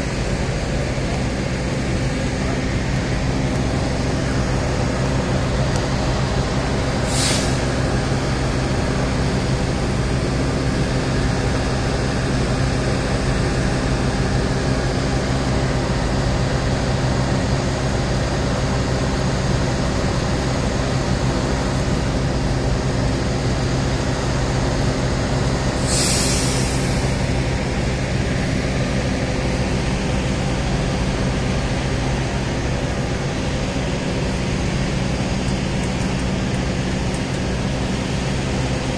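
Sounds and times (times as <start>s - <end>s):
diesel engine idling: 0.0s - 38.9s
air hiss: 6.9s - 7.9s, 25.8s - 27.2s
air-brake hiss: 6.9s - 8.0s, 25.8s - 27.3s.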